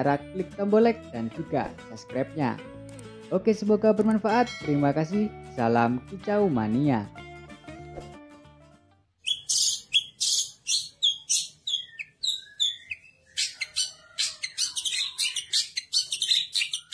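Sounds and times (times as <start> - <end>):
shrike singing harsh calls: 9.2 - 16.9.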